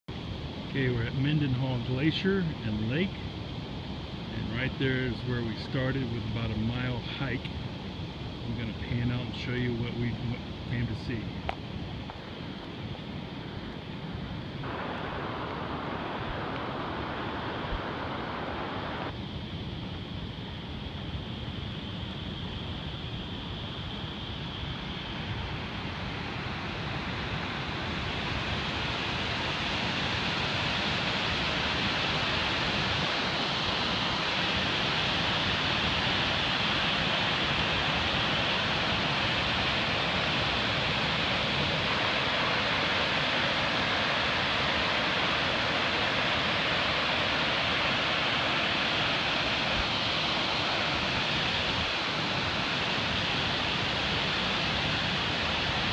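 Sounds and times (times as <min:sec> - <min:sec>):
large waterfall rushing: 0:12.2 - 0:19.1, 0:24.4 - 0:55.9.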